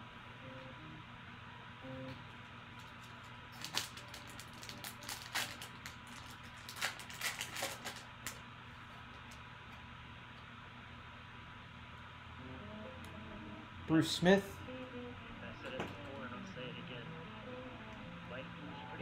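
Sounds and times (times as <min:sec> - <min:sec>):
foil wrapper crinkling: 0:02.8 - 0:08.4.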